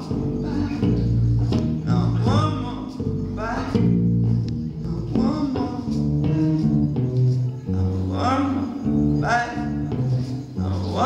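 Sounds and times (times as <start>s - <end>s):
man singing into a microphone: 0.0s - 1.1s, 1.8s - 4.1s, 4.7s - 6.5s, 7.7s - 11.0s
acoustic guitar chords: 0.0s - 11.0s.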